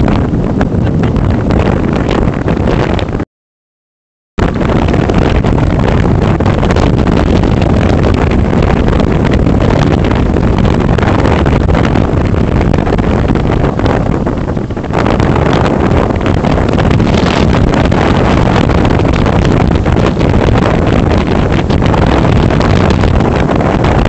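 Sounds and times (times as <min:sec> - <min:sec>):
storm surf breaking: 0:00.0 - 0:03.2, 0:04.4 - 0:24.0
wind buffeting microphone: 0:00.0 - 0:03.2, 0:04.4 - 0:24.0.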